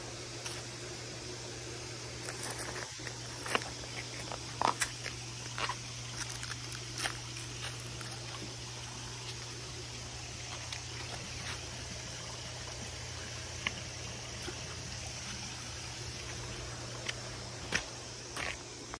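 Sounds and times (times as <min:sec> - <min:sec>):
water trickling: 0:00.0 - 0:19.0
footsteps on rock and gravel: 0:02.1 - 0:12.0, 0:16.0 - 0:19.0.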